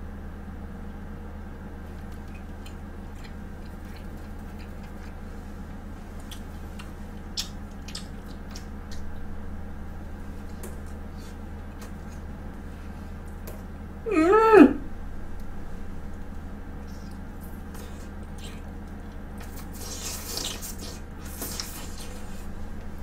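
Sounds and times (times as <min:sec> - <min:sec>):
low electrical hum: 0:00.0 - 0:23.0
chewing with wet mouth clicks: 0:01.8 - 0:09.3, 0:10.4 - 0:12.6, 0:16.1 - 0:23.0.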